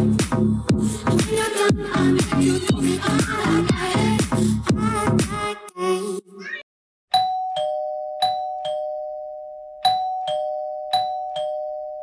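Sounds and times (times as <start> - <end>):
dance music: 0.0 - 5.6.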